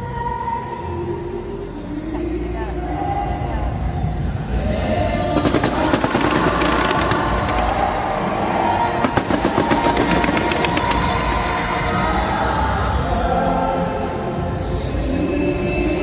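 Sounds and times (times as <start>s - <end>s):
fireworks crackling: 5.4s - 12.4s.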